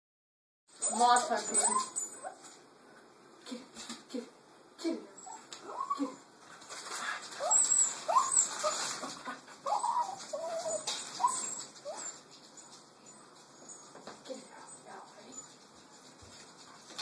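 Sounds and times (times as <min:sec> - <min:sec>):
dog whining: 0:01.4 - 0:02.4, 0:05.2 - 0:06.3, 0:07.3 - 0:14.0.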